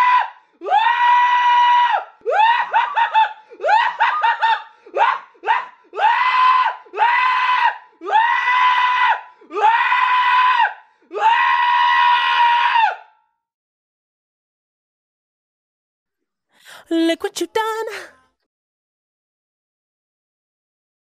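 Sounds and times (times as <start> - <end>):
short breaths: 16.6 - 16.9.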